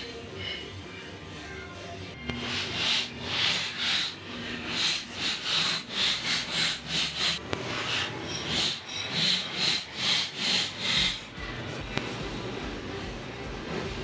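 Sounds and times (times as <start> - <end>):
wire brush scrubbing steel: 2.3 - 11.4.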